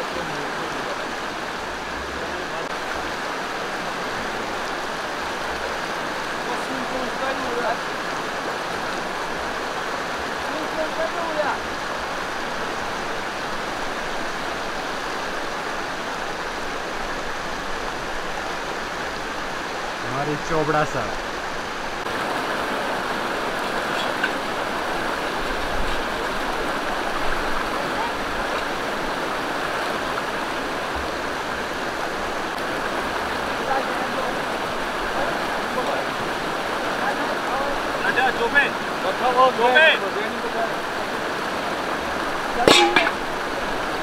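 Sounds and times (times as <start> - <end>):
stream rushing over stones: 0.0 - 44.0.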